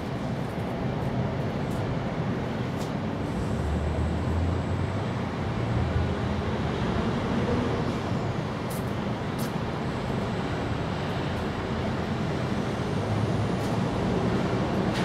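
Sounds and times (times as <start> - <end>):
outdoor background noise: 0.0 - 15.0.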